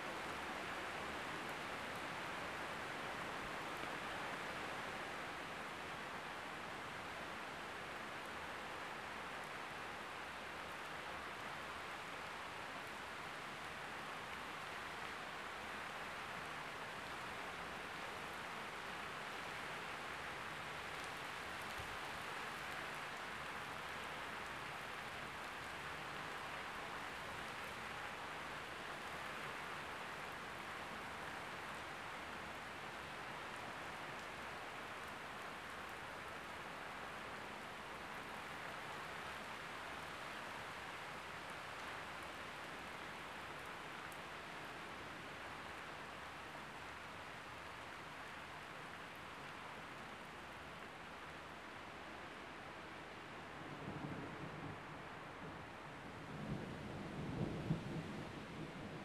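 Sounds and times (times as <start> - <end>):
rain falling steadily: 0.0 - 59.0.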